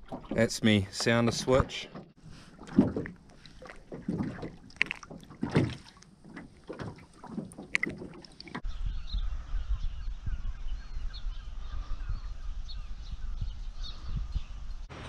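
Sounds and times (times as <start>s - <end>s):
small waves lapping and splashing: 0.0s - 8.6s
wind rumble on microphone: 8.6s - 15.0s.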